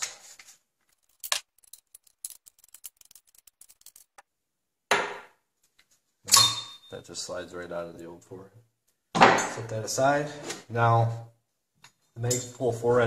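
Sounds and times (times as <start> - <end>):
wrench clicking and scraping metal: 0.9 - 4.2.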